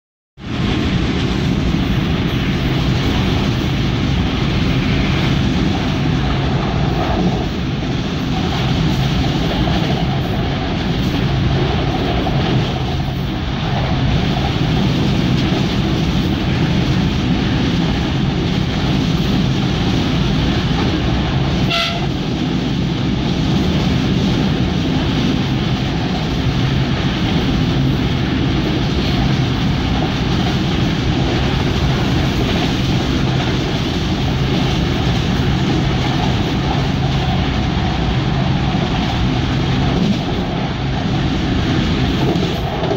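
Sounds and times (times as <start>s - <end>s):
train wheels rumbling on rails: 0.4s - 42.9s.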